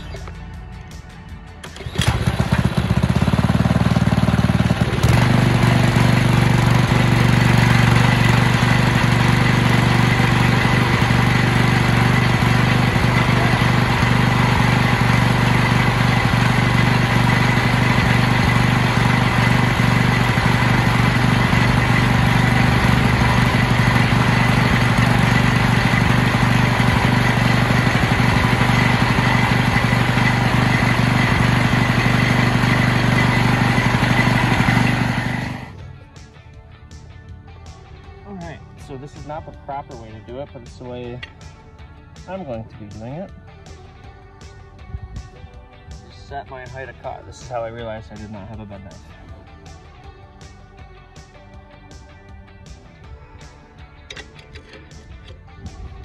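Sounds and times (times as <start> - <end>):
mower engine running: 0.0 - 36.0, 54.0 - 55.8.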